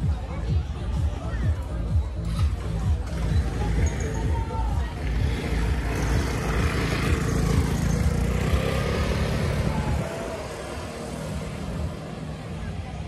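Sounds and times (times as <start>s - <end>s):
motor scooter passing: 3.0s - 13.0s.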